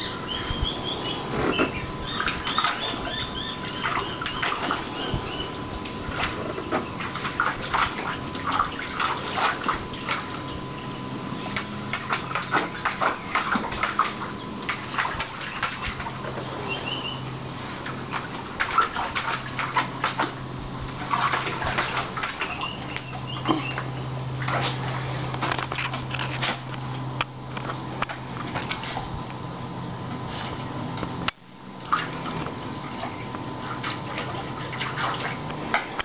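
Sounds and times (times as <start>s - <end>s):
dog splashing in water: 0.0s - 10.5s, 11.4s - 17.2s, 17.8s - 24.9s, 31.8s - 36.0s.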